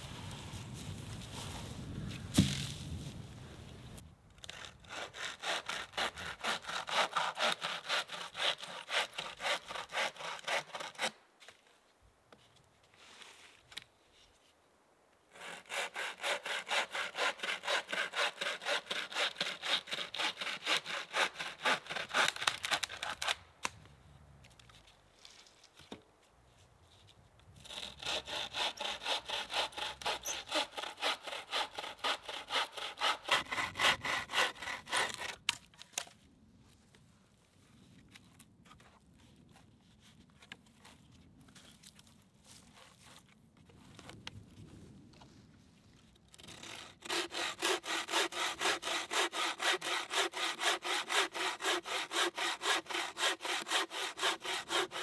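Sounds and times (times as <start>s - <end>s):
hand saw cutting log: 4.4s - 11.2s, 15.3s - 23.4s, 27.6s - 36.1s, 46.4s - 55.0s.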